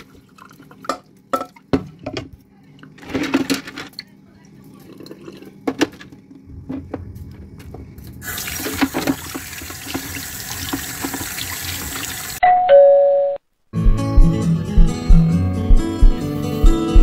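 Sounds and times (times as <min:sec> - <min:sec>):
tap water running over meat: 0:08.3 - 0:12.4.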